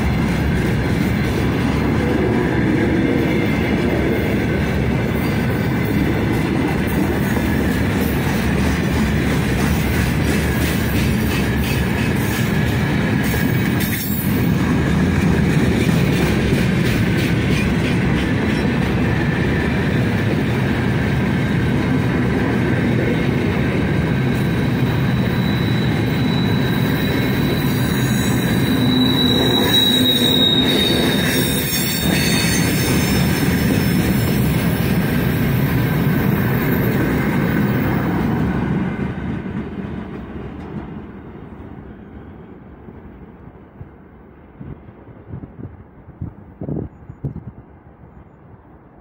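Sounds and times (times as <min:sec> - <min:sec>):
train wheels rumbling on rail: 0:00.0 - 0:48.8
high wheel squeal: 0:24.4 - 0:34.3.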